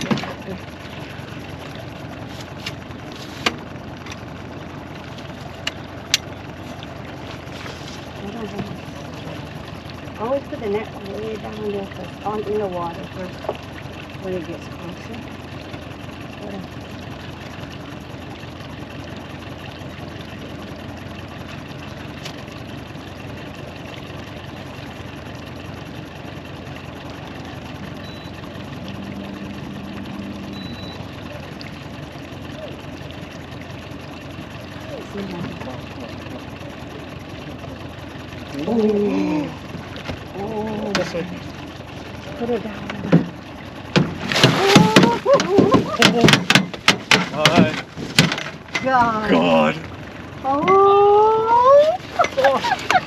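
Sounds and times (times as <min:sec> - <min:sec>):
boat motor running: 0:00.0 - 0:53.0
sharp clicks and knocks: 0:43.9 - 0:48.9.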